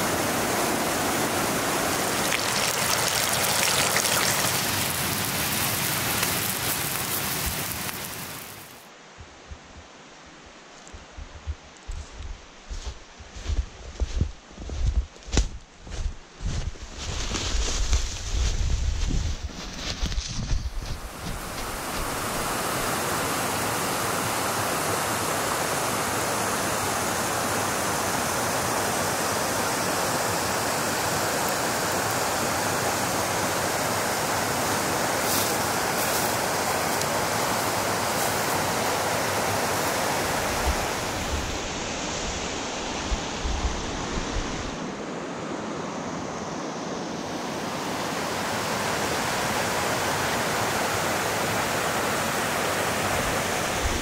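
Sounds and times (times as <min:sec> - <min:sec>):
creek water rushing over rocks: 0:00.0 - 0:08.8, 0:20.8 - 0:43.1, 0:47.4 - 0:54.0.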